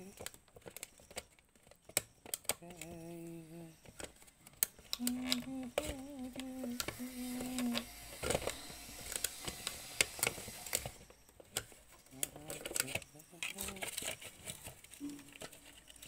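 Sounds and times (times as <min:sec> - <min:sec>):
plastic clicks and rattles: 0:00.0 - 0:03.1, 0:03.8 - 0:16.0
man humming: 0:02.6 - 0:03.9, 0:05.0 - 0:07.9, 0:12.1 - 0:14.0.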